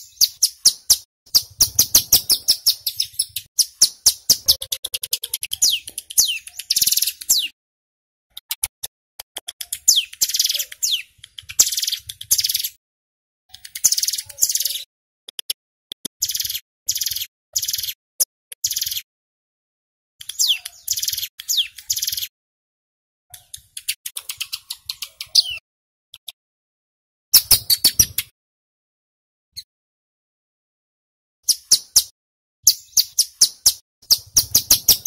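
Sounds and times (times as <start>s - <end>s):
bird sharp high chips: 0.0s - 7.6s, 9.5s - 12.8s, 13.5s - 14.9s, 20.2s - 22.3s
bird buzzy rattling trills: 0.1s - 7.5s.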